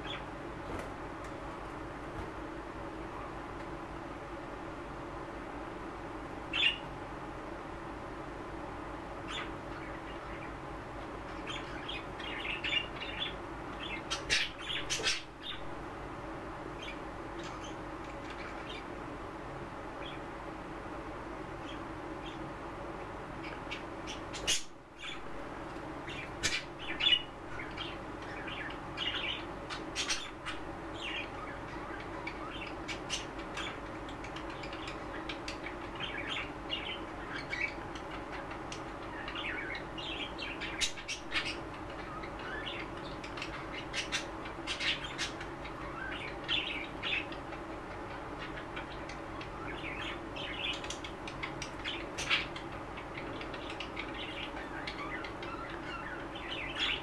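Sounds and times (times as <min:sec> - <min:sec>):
steady low hum: 0:00.0 - 0:57.0
budgerigars chirping: 0:09.3 - 0:10.5, 0:11.3 - 0:15.7, 0:23.4 - 0:25.3, 0:26.0 - 0:57.0.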